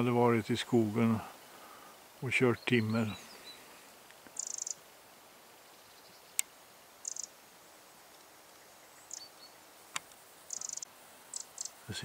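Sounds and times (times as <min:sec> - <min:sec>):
wren rattling calls: 0:04.3 - 0:04.8, 0:07.0 - 0:07.4, 0:10.5 - 0:12.0.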